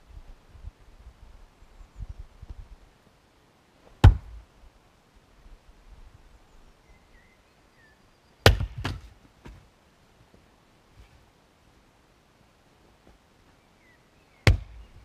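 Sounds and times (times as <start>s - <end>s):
axe chopping firewood: 4.0s - 4.4s, 8.4s - 9.6s, 14.4s - 14.8s.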